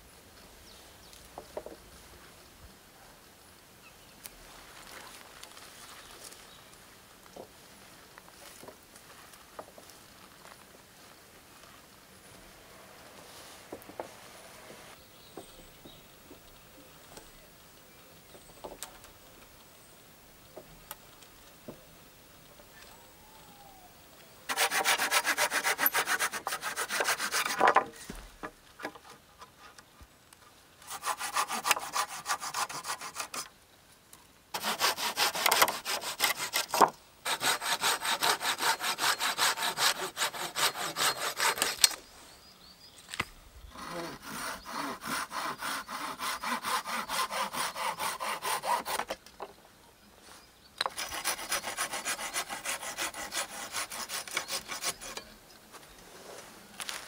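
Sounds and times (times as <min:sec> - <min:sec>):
hand saw cutting wood: 0:24.5 - 0:27.9, 0:30.8 - 0:33.5, 0:34.5 - 0:42.0, 0:43.7 - 0:49.2, 0:50.8 - 0:55.3.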